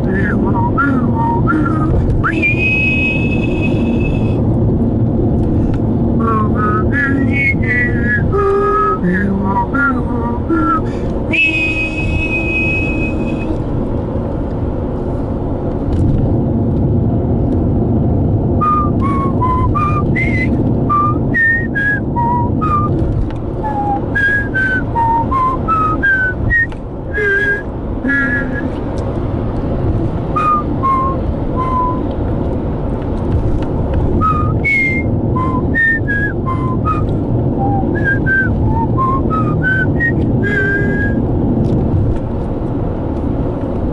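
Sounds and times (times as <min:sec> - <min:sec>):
person whistling a melody: 0:00.0 - 0:04.4, 0:06.2 - 0:13.6, 0:18.6 - 0:23.0, 0:23.6 - 0:28.7, 0:30.3 - 0:32.1, 0:34.1 - 0:41.2
car road and engine rumble: 0:00.0 - 0:43.9.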